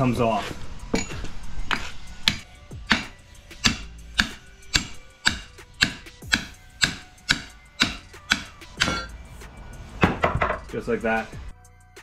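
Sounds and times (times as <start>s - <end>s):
hammer blows on steel: 1.0s - 9.2s.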